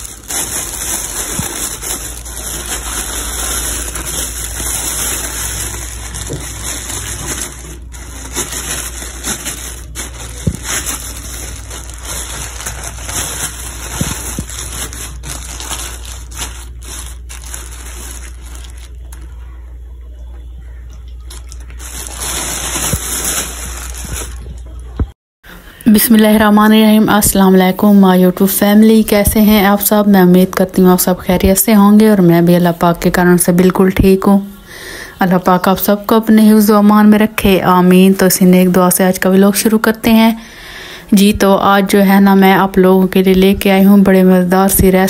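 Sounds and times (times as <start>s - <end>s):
plastic bags crinkling: 0.0s - 19.6s, 21.2s - 24.8s.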